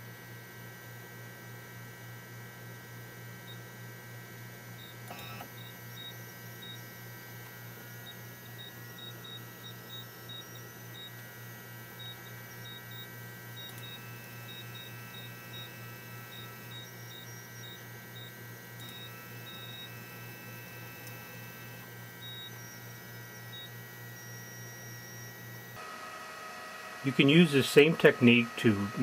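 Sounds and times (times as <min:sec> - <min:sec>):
low electrical hum: 0:00.0 - 0:29.0
high-pitched whine: 0:04.8 - 0:25.8.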